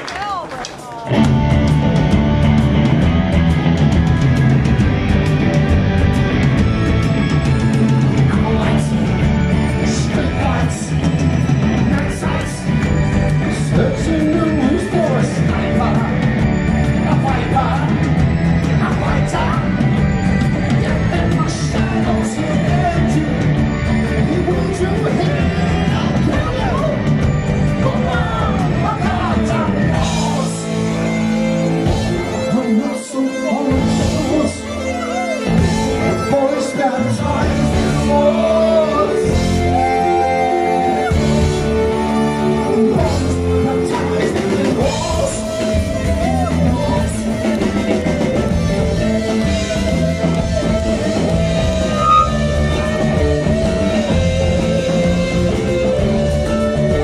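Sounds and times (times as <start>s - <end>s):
drums: 0.0s - 57.0s
keyboards: 0.0s - 57.0s
rock band playing live: 0.3s - 57.0s
bass guitar: 1.1s - 57.0s
man singing into microphone: 7.8s - 12.8s, 13.4s - 16.3s, 20.7s - 26.8s, 32.0s - 47.9s.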